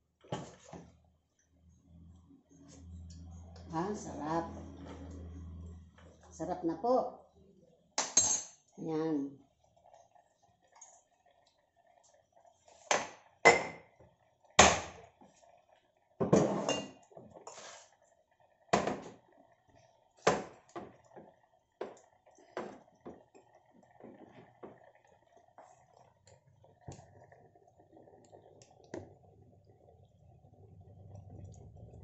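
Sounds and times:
kitchenware knocks and clinks: 16.2 - 17.0.

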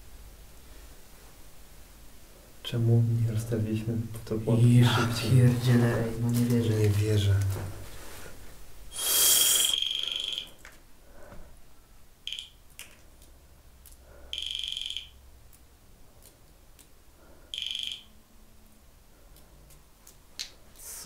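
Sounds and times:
high electronic alarm beeps: 9.4 - 10.6, 12.3 - 12.6, 14.4 - 15.2, 17.5 - 18.2.

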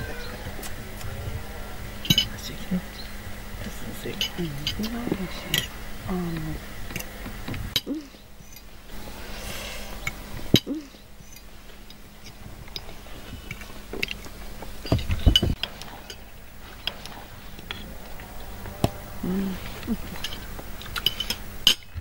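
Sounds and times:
heavy thumps: 13.2 - 20.8.

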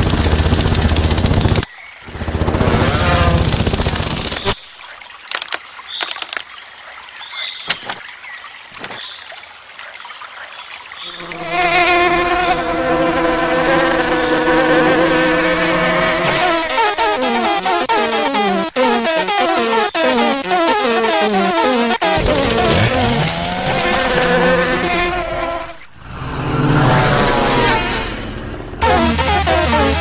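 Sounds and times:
cartoon insect wings buzzing: 11.1 - 25.8, 28.8 - 30.0.

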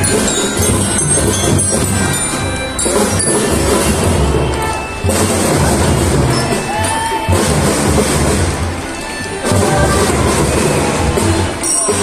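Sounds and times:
glockenspiels: 0.0 - 7.3
melodicas playing: 0.0 - 12.0
snare and bass drum beats: 0.0 - 12.0.

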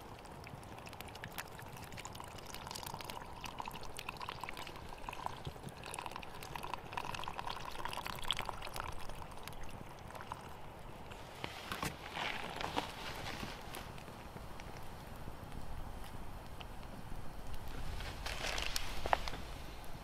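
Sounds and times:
campfire crackling: 0.0 - 20.0
liquid pouring into steel pot: 0.2 - 10.6.

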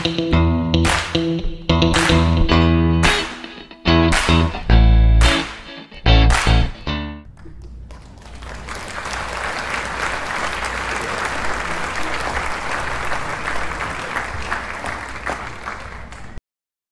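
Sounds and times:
applause: 7.9 - 16.4.

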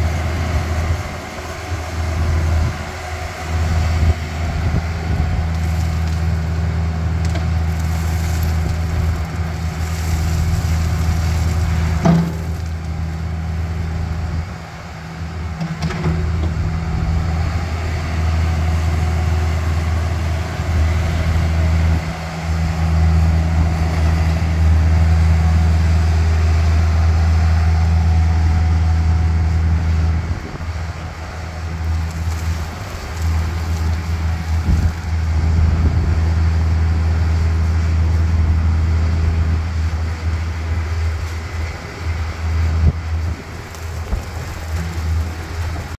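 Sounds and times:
excavator diesel engine running: 0.0 - 45.9.

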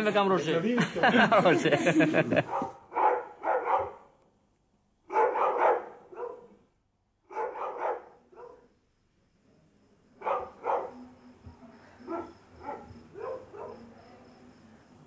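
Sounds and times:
dog barking: 2.4 - 4.2, 5.1 - 6.6, 7.3 - 8.7, 10.2 - 11.0, 12.0 - 14.0.

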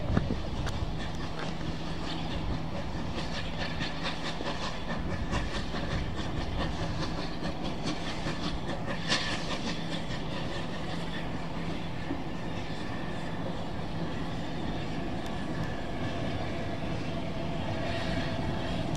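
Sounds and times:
steam locomotive beats and hiss: 0.0 - 18.9
train wheels clattering on rail: 0.0 - 18.9.

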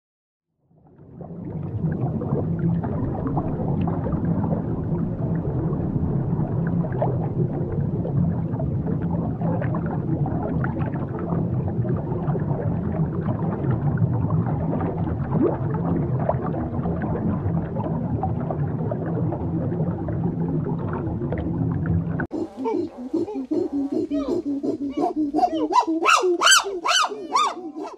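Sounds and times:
low underwater rumble: 0.6 - 22.3
bubbling and gurgling: 0.6 - 27.9.

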